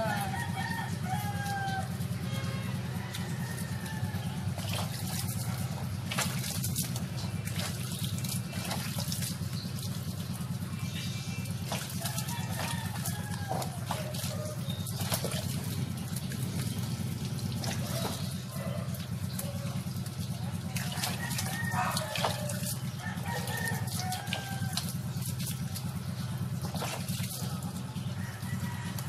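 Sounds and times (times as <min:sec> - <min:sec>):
steady low hum: 0:00.0 - 0:29.0
water splashing and dripping: 0:00.0 - 0:29.0.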